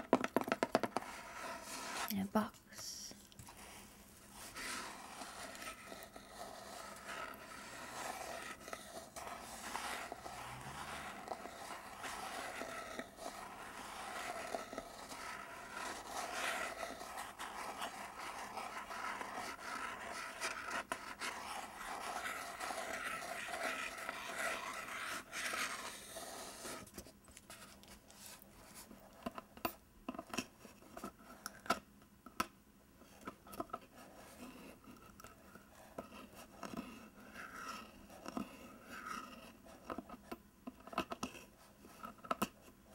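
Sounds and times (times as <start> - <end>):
fingernails scratching cardboard: 0.1 - 2.1, 4.4 - 26.9.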